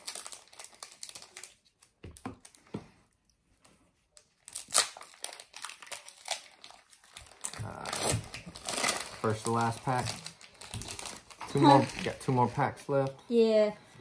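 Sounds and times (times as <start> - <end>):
foil wrappers crinkling: 0.0 - 2.6, 4.2 - 12.7.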